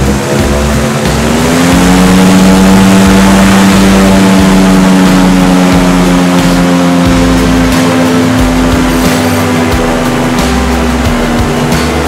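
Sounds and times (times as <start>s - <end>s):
airboat engine drone: 0.0s - 12.0s.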